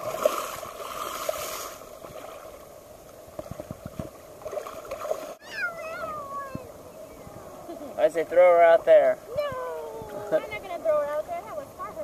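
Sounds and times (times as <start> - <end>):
sea water sloshing and splashing: 0.0 - 6.2
child whining: 5.4 - 7.6.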